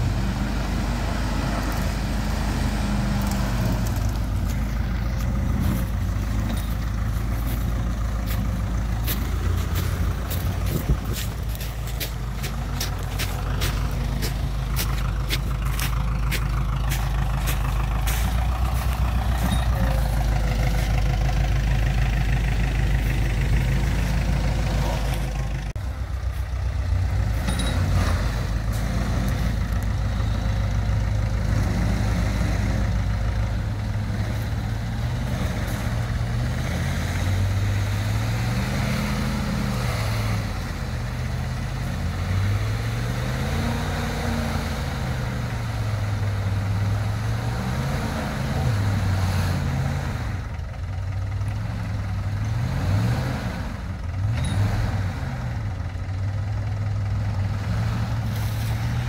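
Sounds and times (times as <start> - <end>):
pickup truck engine: 0.0 - 59.0
tractor engine under load: 0.0 - 59.0.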